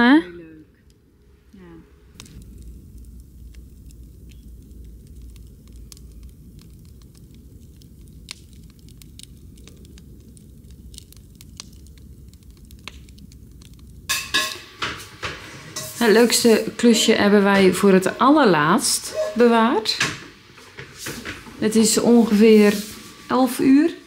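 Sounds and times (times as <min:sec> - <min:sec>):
low steady rumble: 0:00.0 - 0:14.3
wood fire crackling: 0:00.0 - 0:24.0.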